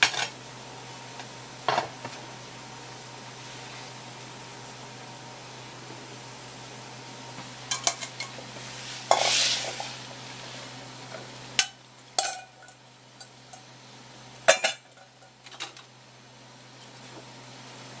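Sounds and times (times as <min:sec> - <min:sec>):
metal pots and lid clinking: 0:07.7 - 0:08.4, 0:11.6 - 0:13.6, 0:14.5 - 0:15.8
short hiss: 0:08.8 - 0:10.0.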